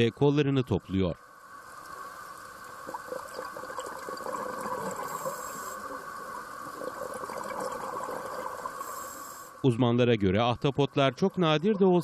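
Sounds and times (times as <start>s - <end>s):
faint crackles: 1.4s - 9.7s
underwater watery hiss: 1.6s - 9.6s.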